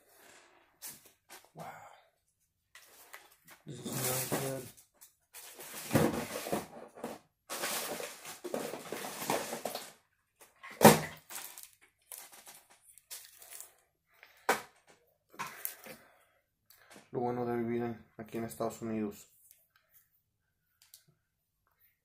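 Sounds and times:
rustling and shuffling handling noise: 0:02.2 - 0:16.0.

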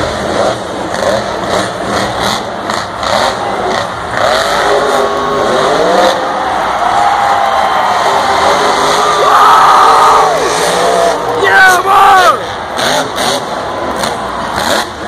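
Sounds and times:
truck engine revving hard: 0:00.0 - 0:15.0.

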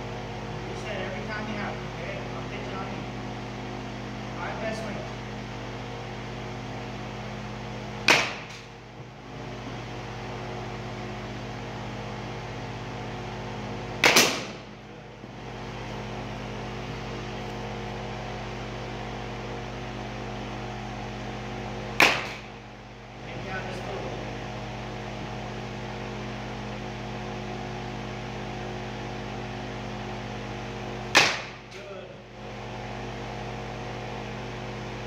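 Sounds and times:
steady low hum: 0:00.0 - 0:35.0
baseball bat hitting ball: 0:08.0 - 0:08.7, 0:14.0 - 0:14.7, 0:22.0 - 0:22.6, 0:31.1 - 0:31.8.

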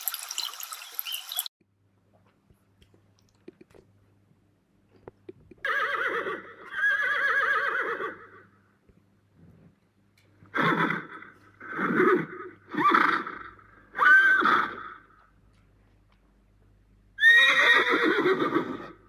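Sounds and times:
horse whinnying: 0:05.6 - 0:08.4, 0:10.5 - 0:15.1, 0:17.2 - 0:19.0.

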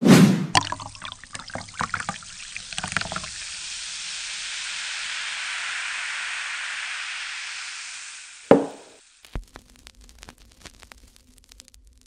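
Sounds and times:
cola poured over ice: 0:00.5 - 0:06.9
fizzing hiss of carbonation: 0:00.6 - 0:09.3.

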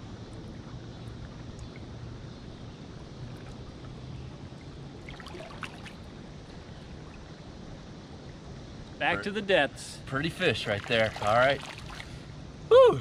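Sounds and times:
small water splashes: 0:00.3 - 0:08.5, 0:10.4 - 0:12.3
river water lapping: 0:00.3 - 0:08.8, 0:10.3 - 0:12.4.

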